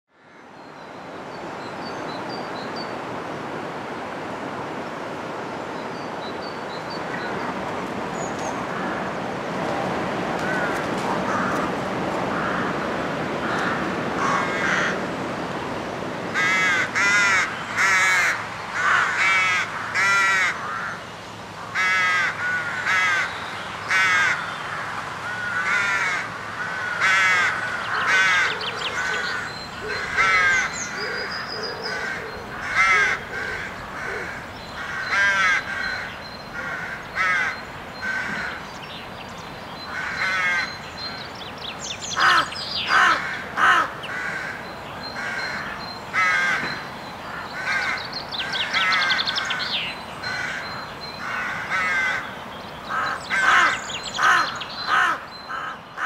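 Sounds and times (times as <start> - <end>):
rooks cawing: 0.2 - 0.6, 8.6 - 9.2, 10.4 - 15.1, 16.3 - 38.9, 39.8 - 41.3, 42.1 - 56.0.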